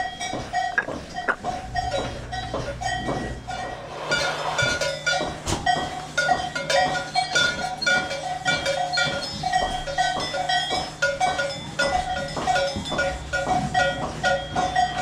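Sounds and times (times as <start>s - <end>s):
steady low hum: 0.0s - 7.6s.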